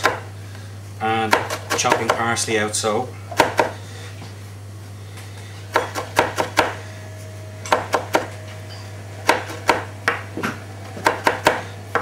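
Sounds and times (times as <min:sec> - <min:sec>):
knife chopping on a board: 0:00.0 - 0:00.3, 0:01.2 - 0:02.3, 0:03.4 - 0:03.8, 0:05.7 - 0:06.8, 0:07.7 - 0:08.4, 0:09.2 - 0:12.0.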